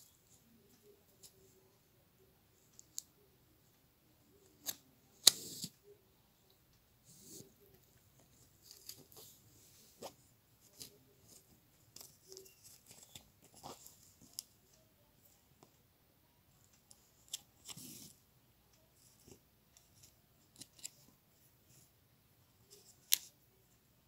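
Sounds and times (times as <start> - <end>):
thread and foil rustling: 8.2 - 14.8.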